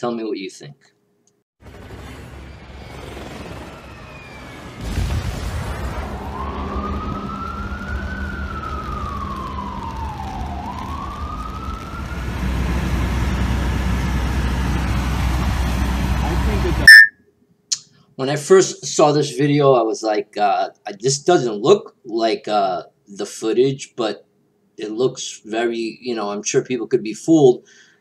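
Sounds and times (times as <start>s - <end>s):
low rumble of street noise: 1.6s - 17.0s
emergency vehicle siren wailing: 1.9s - 5.0s, 5.8s - 17.1s.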